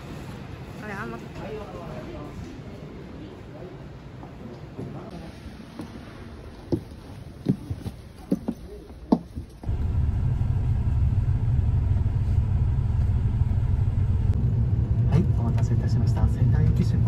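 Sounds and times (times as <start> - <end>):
footsteps climbing bus steps: 5.7 - 9.7
bus engine idling: 9.6 - 17.0.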